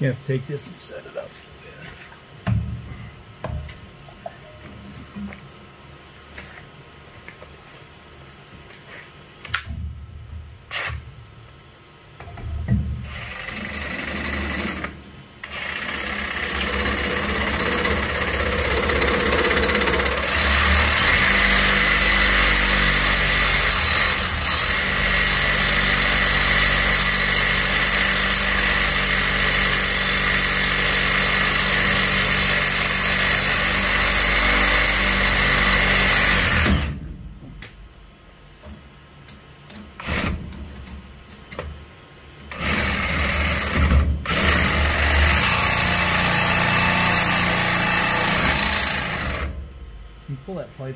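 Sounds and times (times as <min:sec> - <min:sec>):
reciprocating saw cutting pipe: 0:15.4 - 0:36.9.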